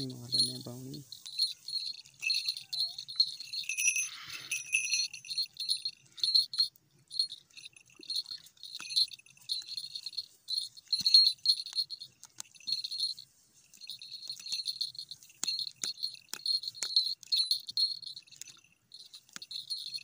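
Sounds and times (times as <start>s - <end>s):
small metal bell jingling: 0.0s - 20.0s.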